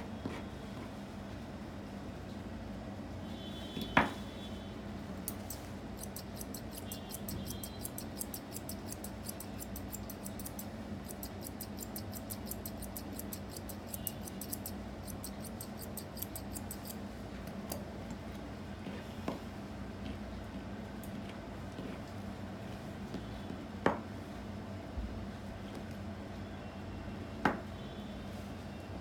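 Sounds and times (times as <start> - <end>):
scissors snipping hair: 5.3 - 17.0.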